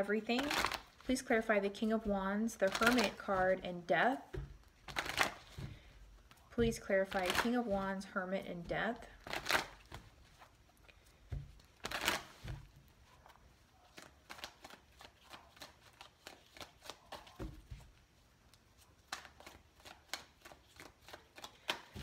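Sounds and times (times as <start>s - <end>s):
cards being shuffled: 0.3s - 3.7s, 4.3s - 8.0s, 8.6s - 22.0s
dull thumps: 3.2s - 5.9s.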